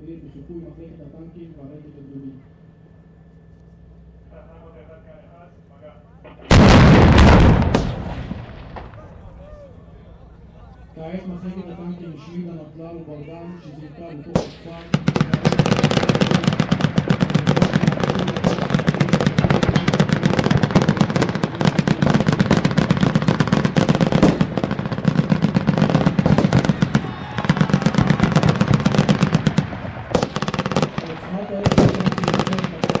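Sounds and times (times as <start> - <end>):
heavy machine-gun fire: 6.3 - 9.2, 14.4 - 33.0.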